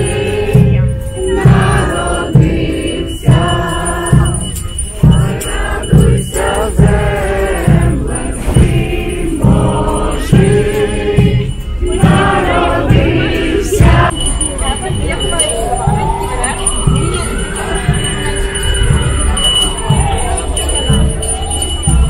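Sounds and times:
group singing a carol: 0.0s - 14.4s
steady low beat: 0.0s - 22.0s.

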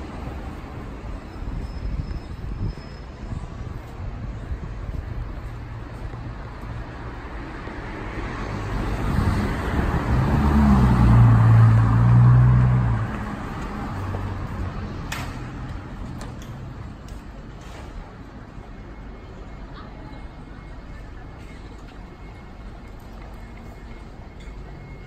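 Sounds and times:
traffic noise: 0.0s - 25.0s
vehicle passing close by: 8.3s - 14.9s.

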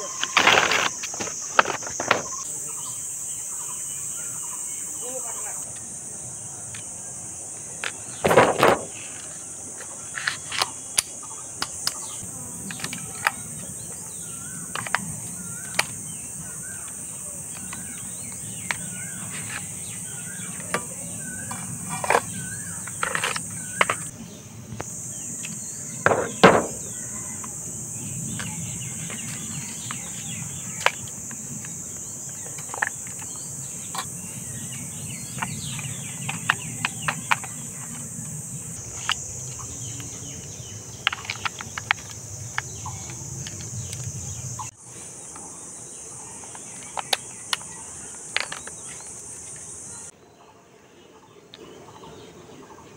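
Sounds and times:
high-pitched insect drone: 0.0s - 50.1s
plastic toy parts clicking: 48.3s - 48.8s.

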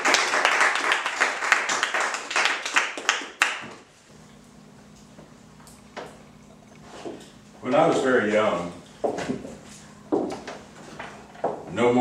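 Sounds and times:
audience applauding: 0.0s - 3.7s.

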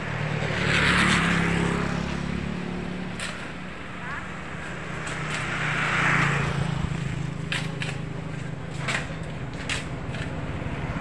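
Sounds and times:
vehicle engine hum: 0.0s - 11.0s
vehicle passing: 0.0s - 11.0s
sharp knocks and clatters: 7.4s - 10.4s.

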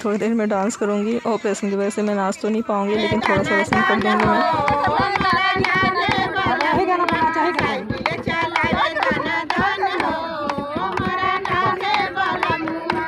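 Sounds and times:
women singing folk song: 0.0s - 13.0s
quick steady beat: 2.3s - 13.0s.

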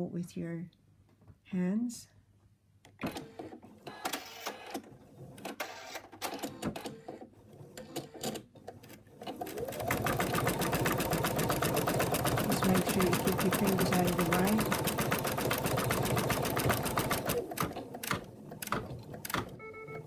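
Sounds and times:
embroidery machine stitching: 9.1s - 19.6s.

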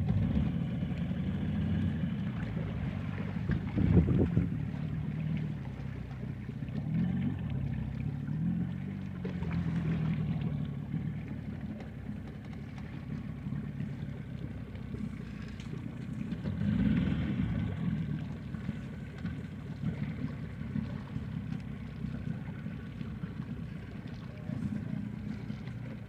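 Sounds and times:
boat engine humming: 0.0s - 26.0s.

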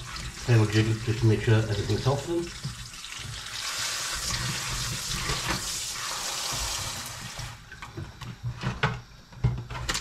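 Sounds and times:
tap water splashing on potatoes: 0.0s - 7.4s.

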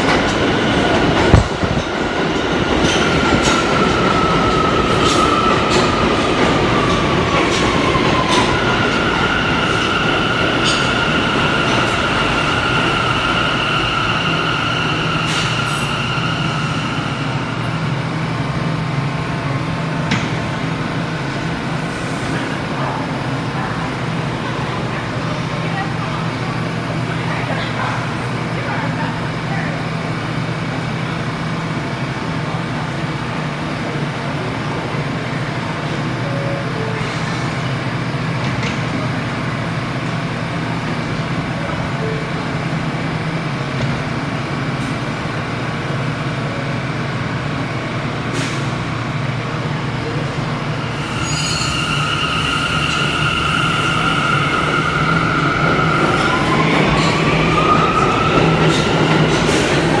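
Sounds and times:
subway train humming: 0.0s - 60.0s.

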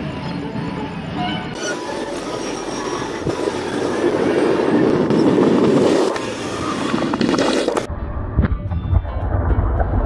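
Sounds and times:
fireworks crackling: 1.6s - 7.9s.

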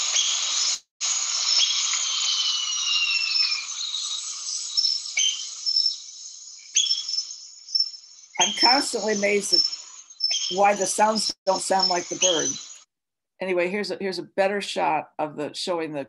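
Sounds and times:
high bird whistles: 0.0s - 12.8s
insects hissing: 0.0s - 12.9s.

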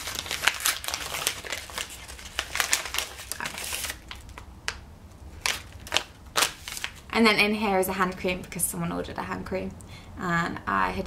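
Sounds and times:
paper bag crinkling: 0.0s - 4.5s, 5.3s - 7.1s.

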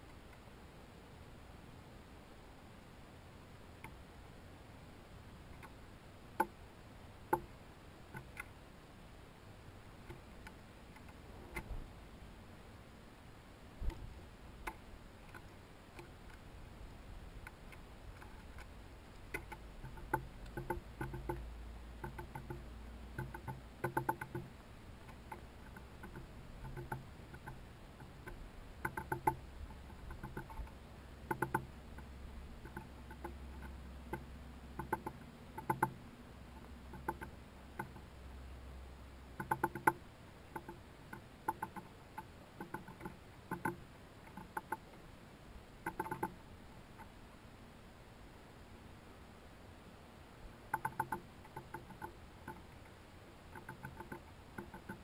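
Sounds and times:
birds pecking on wooden board: 5.4s - 6.6s, 7.3s - 8.6s, 10.0s - 11.8s, 13.8s - 38.1s, 39.3s - 45.0s, 45.8s - 47.2s, 50.6s - 55.0s.

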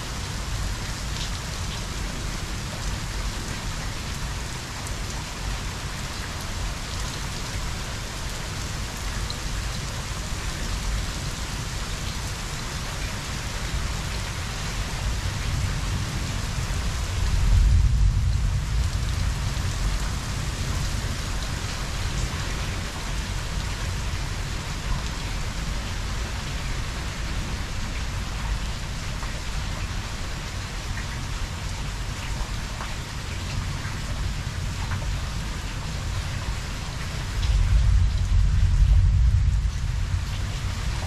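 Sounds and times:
heavy rain: 0.0s - 41.0s
thunder rumbling: 37.4s - 41.0s.

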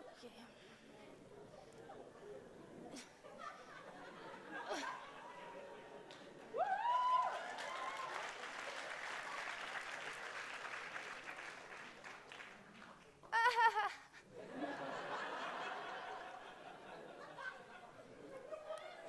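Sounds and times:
audience laughing: 1.7s - 6.5s, 13.4s - 19.0s
audience applauding: 6.1s - 13.3s.

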